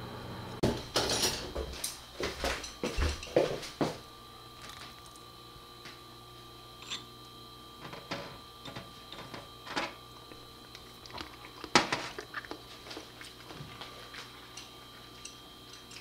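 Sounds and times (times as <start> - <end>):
faint steady hum: 0.0 - 16.0
chopsticks clicking and tapping: 14.5 - 16.0.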